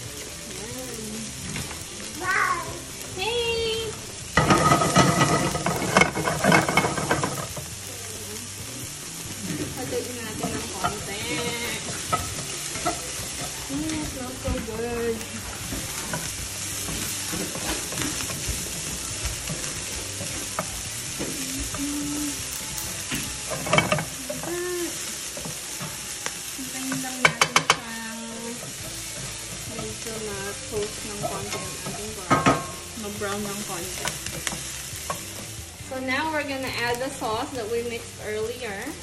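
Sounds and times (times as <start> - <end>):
aromatics sizzling in oil: 0.0 - 39.0
wooden spatula scraping pan: 4.4 - 7.6, 9.4 - 21.8.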